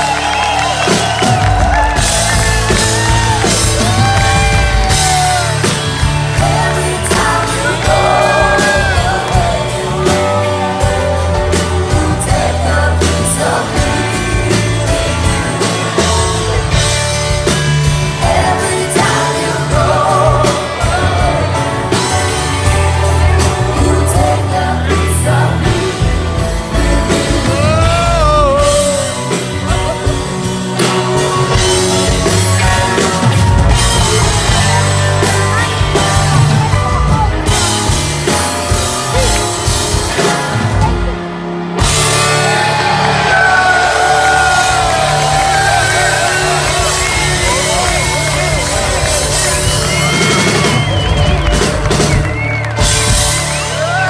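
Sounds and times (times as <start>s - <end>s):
pop-rock band playing: 0.0s - 54.0s
person singing: 2.7s - 16.8s, 17.9s - 30.4s.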